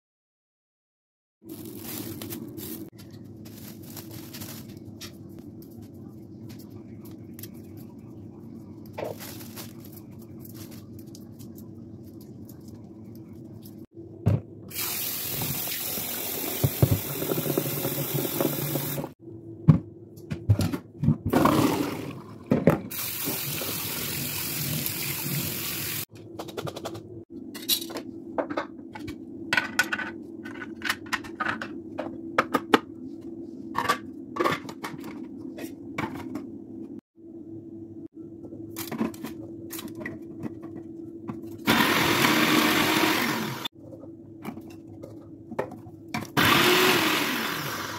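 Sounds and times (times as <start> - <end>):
low steady hum: 1.5 - 14.7
kitchen tap running: 14.7 - 19.1, 22.9 - 26.1.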